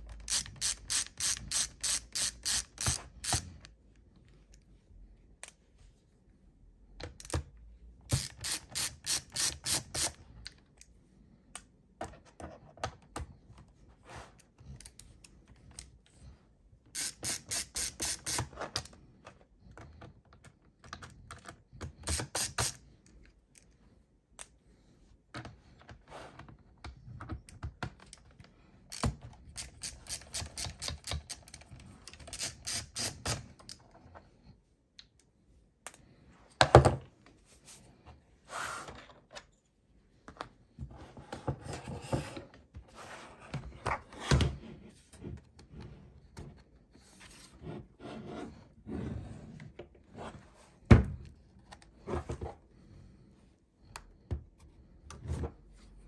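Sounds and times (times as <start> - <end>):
ratcheting screwdriver clicking: 0.1 - 3.7, 8.1 - 10.2, 28.9 - 33.8.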